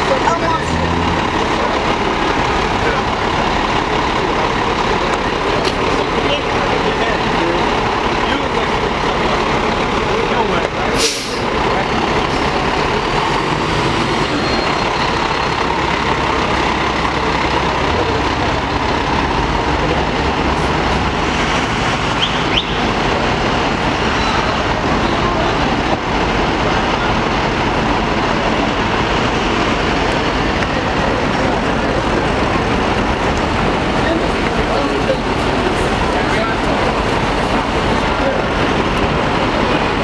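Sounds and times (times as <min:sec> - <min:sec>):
city street traffic noise: 0:00.0 - 0:40.0
fire engine diesel engine rumbling: 0:00.0 - 0:40.0.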